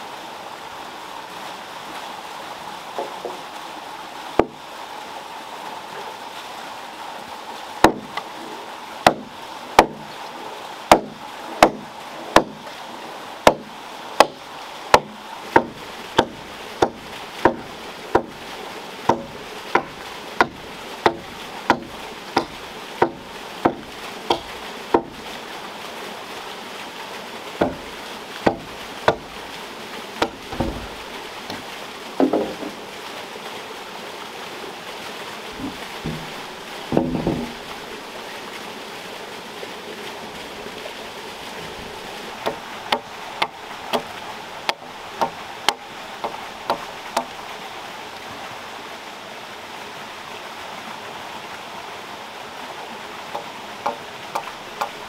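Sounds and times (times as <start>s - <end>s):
rushing water: 0.0s - 55.0s
tool chopping wooden log: 4.4s - 4.6s, 7.8s - 8.2s, 9.0s - 10.1s, 10.9s - 12.6s, 13.4s - 18.4s, 19.1s - 25.2s, 27.6s - 29.3s, 30.2s - 31.6s, 32.2s - 32.8s, 35.6s - 37.6s, 42.4s - 44.1s, 44.7s - 47.3s, 53.3s - 55.0s.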